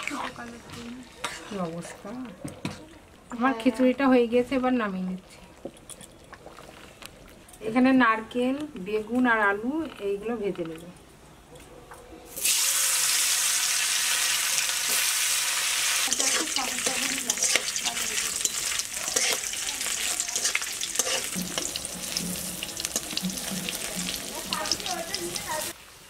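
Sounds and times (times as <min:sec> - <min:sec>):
food sizzling in hot oil: 0:12.3 - 0:26.0
sharp crackles of frying: 0:12.3 - 0:26.0
metal spatula scraping pan: 0:16.0 - 0:25.4.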